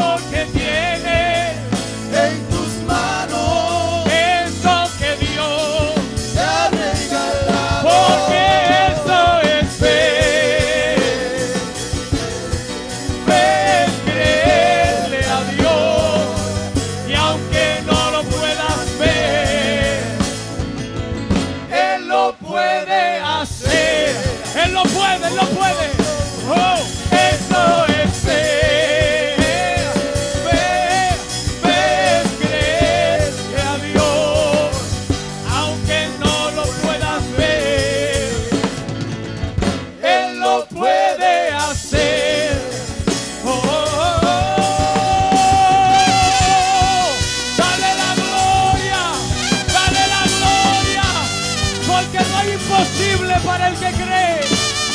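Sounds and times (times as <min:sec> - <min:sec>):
man singing with vibrato: 0:00.0 - 0:20.6, 0:21.7 - 0:38.9, 0:40.0 - 0:54.9
band with trumpets and drums: 0:00.0 - 0:54.9.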